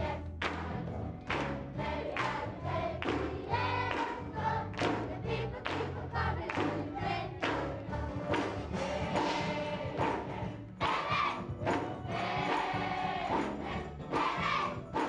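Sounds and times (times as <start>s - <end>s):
hand clapping: 0.4s - 0.7s, 1.3s - 2.4s, 3.0s - 8.7s, 11.7s - 12.7s
children's choir singing: 1.4s - 15.0s.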